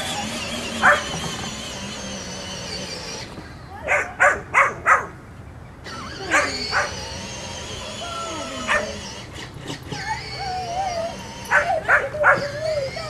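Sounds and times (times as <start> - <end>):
puppy barking: 0.8 - 1.1, 3.8 - 5.2, 6.3 - 7.0, 8.3 - 9.0, 11.5 - 12.7.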